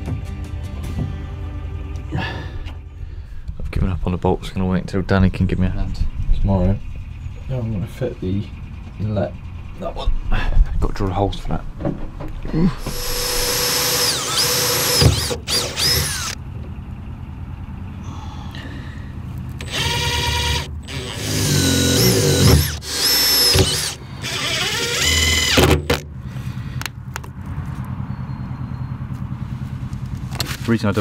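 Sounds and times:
cordless drill drilling steel: 12.8 - 16.4, 19.6 - 25.6.

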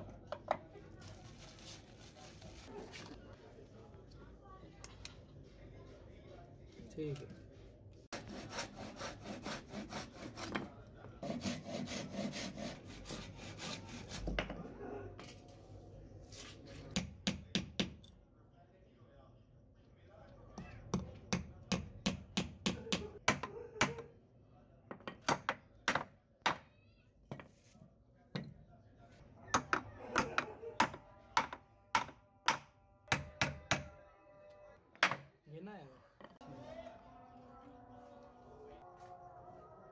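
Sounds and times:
handsaw cutting wood: 8.1 - 10.6, 11.2 - 14.2.

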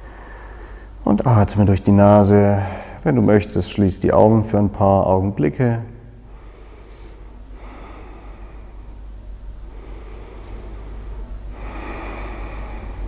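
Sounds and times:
slow breathing through nose: 0.0 - 1.0, 6.3 - 9.0, 9.6 - 13.0
low steady hum: 0.0 - 13.0.

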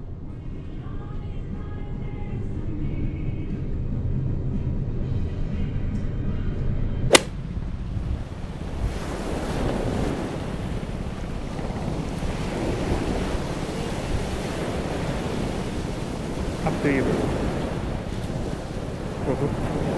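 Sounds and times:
sharp click: 7.1 - 7.4
wind buffeting microphone: 7.1 - 19.9
surf washing onto beach: 8.6 - 19.9.

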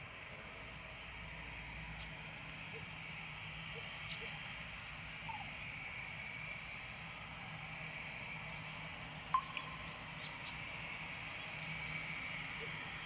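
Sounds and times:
distant jet engines idling: 0.0 - 13.0.

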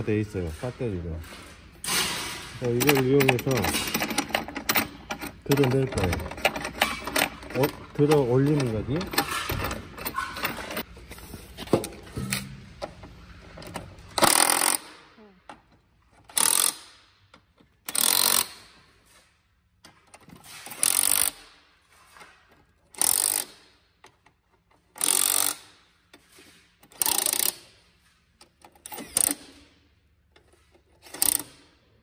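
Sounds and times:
impact driver rattling: 1.9 - 10.9, 14.1 - 15.0.

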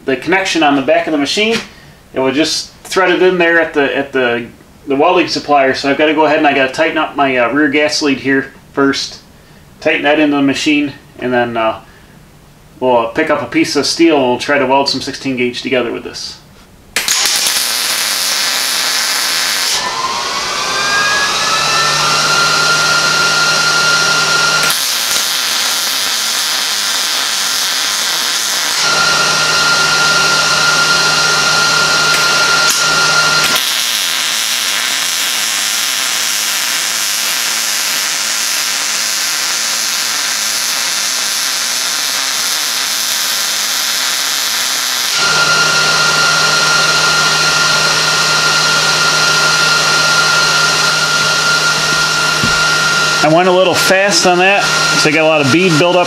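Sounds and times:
welding arc crackling: 17.0 - 19.8, 24.4 - 29.0, 32.1 - 45.4.

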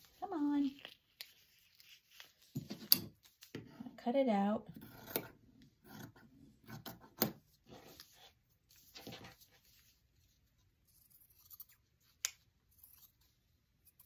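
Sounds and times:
paper and fabric rustling: 0.0 - 3.6, 7.7 - 10.7
scissors snipping fabric: 10.8 - 14.0.

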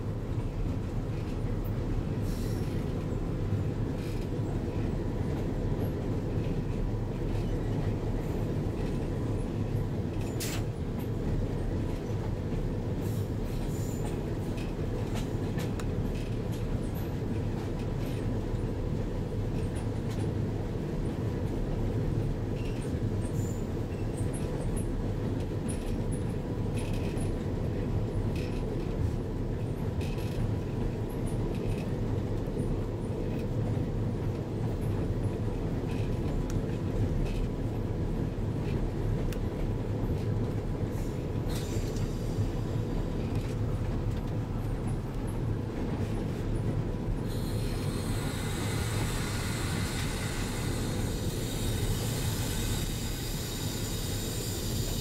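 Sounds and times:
wheel-on-rail noise: 41.4 - 55.0.

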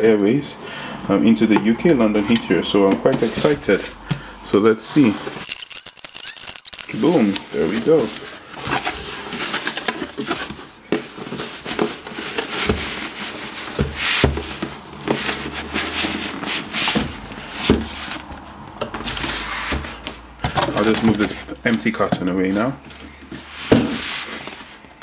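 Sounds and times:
cardboard flaps rustling: 2.3 - 4.3, 6.9 - 25.0
box scraping against cardboard: 3.0 - 3.9, 6.9 - 24.8.

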